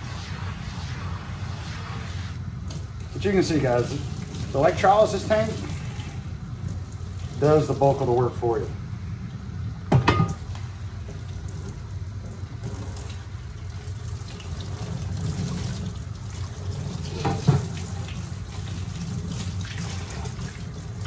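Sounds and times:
faucet water running into sink: 2.7s - 8.4s, 11.0s - 21.0s.

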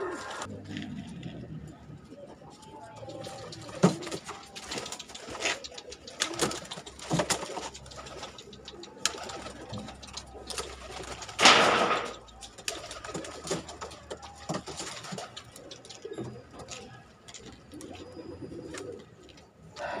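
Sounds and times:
pigeons cooing: 0.0s - 20.0s.

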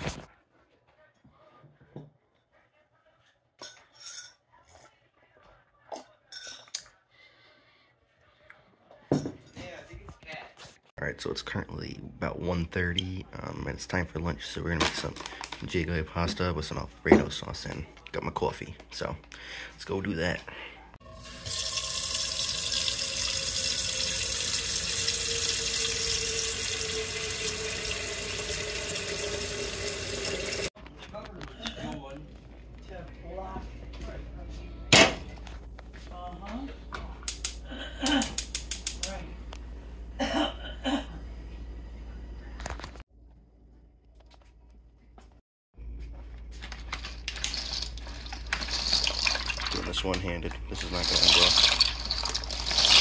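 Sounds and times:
tap water running into saucepan: 21.0s - 30.7s, 47.4s - 53.0s.

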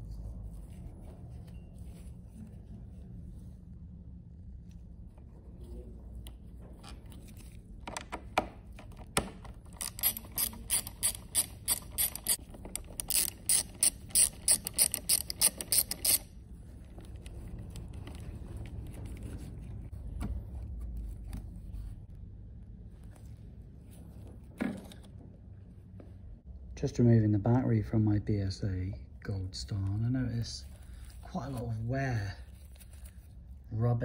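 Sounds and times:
ratchet clicking: 9.7s - 16.3s.

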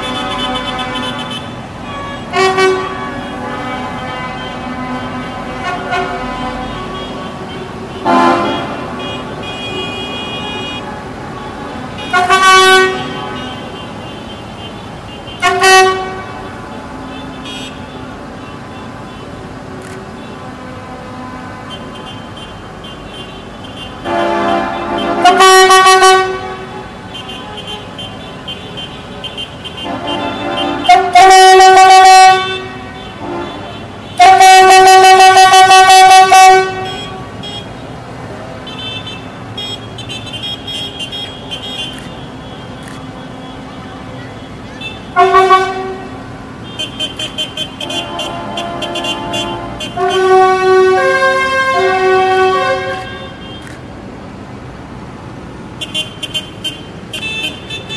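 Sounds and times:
vehicle horn blasts: 0.0s - 16.5s, 20.2s - 37.7s, 44.7s - 53.7s, 55.8s - 57.9s.

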